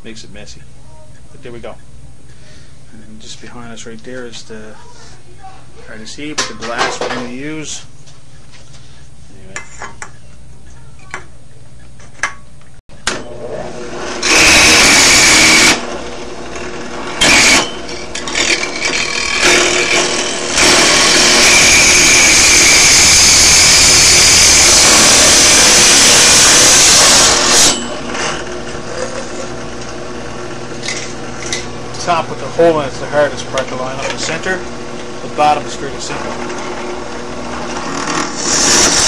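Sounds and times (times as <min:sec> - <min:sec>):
hole saw screeching through metal: 0:14.1 - 0:15.8, 0:17.1 - 0:29.5, 0:37.5 - 0:39.0.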